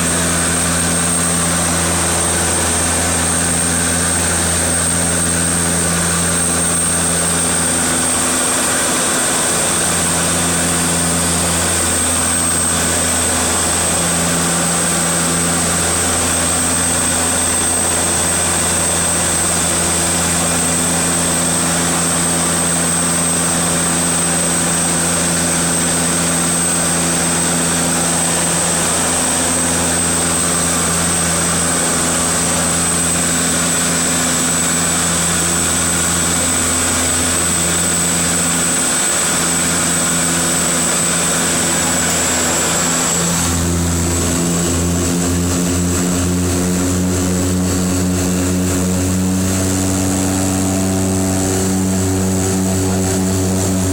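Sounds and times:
propeller engine drone: 0.0 - 53.9.

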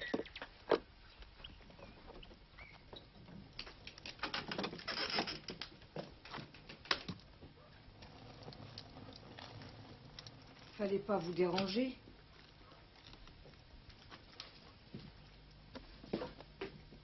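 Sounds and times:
faint bird chirps: 0.0 - 3.2.

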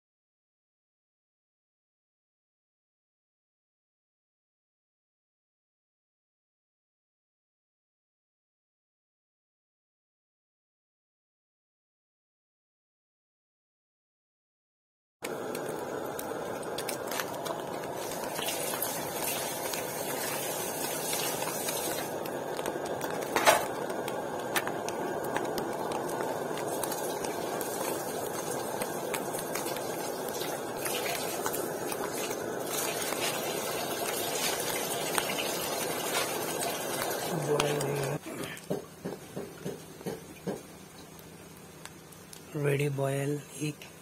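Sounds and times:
egg sizzling in hot fat: 15.2 - 43.2
fat popping: 21.0 - 32.4.

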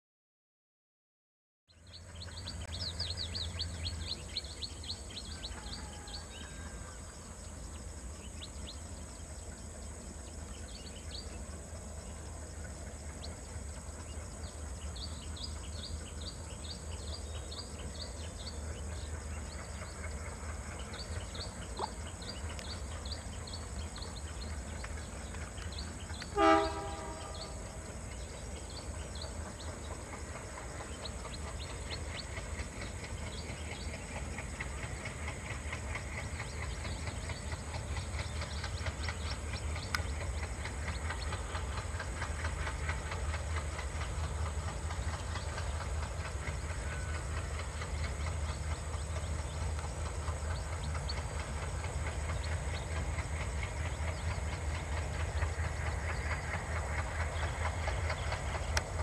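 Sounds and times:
train horn blast: 26.2 - 27.7.

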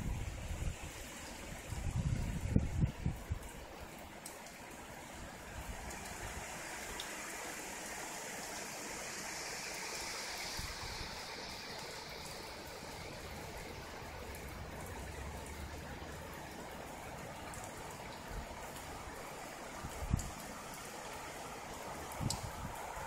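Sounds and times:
rain: 0.0 - 23.0
wind: 0.0 - 23.0.

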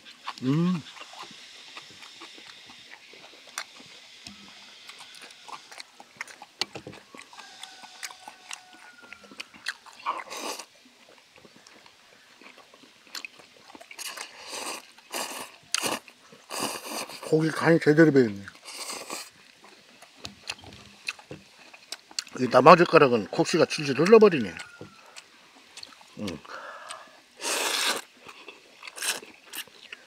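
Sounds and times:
chewing: 0.0 - 17.6, 18.3 - 30.0
noodle slurps: 27.4 - 28.1.

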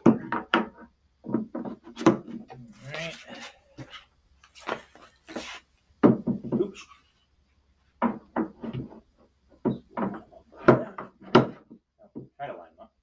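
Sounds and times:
hollow plastic knocks: 0.0 - 2.6, 6.0 - 6.7, 8.0 - 12.4.

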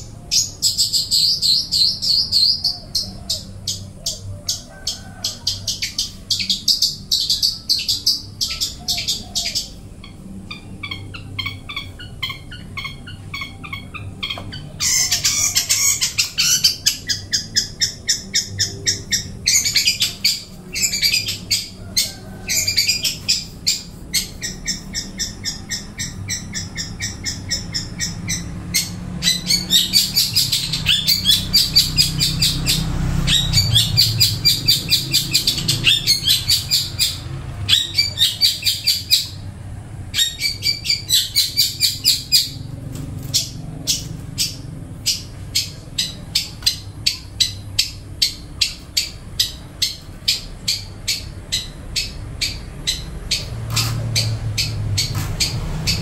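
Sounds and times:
songbird singing: 0.0 - 56.0.

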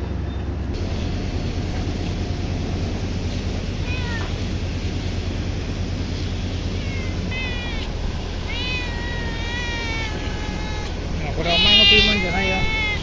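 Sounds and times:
low hum: 0.0 - 13.0
cat meowing: 3.8 - 4.4, 6.7 - 13.0.

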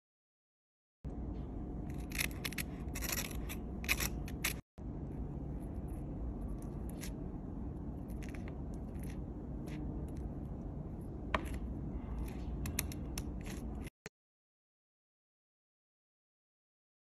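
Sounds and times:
low background rumble: 1.1 - 13.9
spoon scraping crisp toast: 1.9 - 4.6, 7.9 - 10.4, 11.4 - 13.9.

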